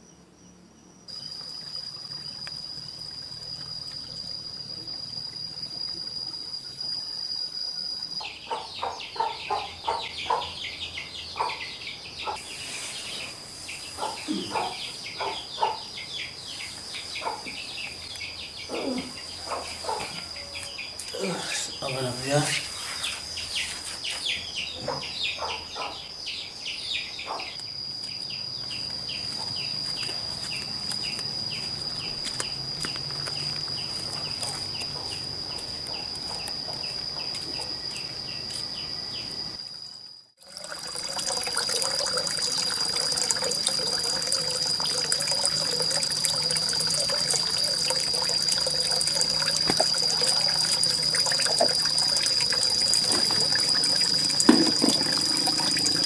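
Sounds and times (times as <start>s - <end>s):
high-pitched insect drone: 0.0s - 56.0s
insects and birds chirping: 0.0s - 56.0s
water running and trickling: 1.1s - 7.0s, 40.4s - 56.0s.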